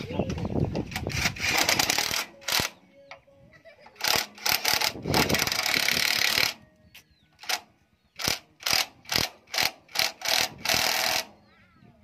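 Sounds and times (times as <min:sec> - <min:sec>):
impact wrench bursts: 0:08.2 - 0:11.3.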